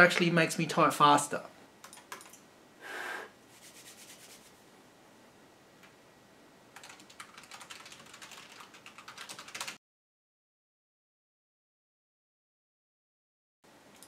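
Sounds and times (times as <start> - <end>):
mechanical keyboard clicks: 1.8 - 2.4, 6.8 - 9.8.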